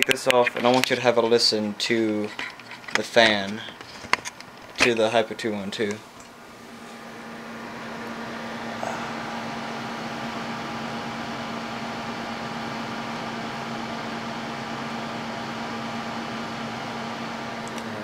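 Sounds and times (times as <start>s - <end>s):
computer cooler fan running: 0.0s - 18.0s.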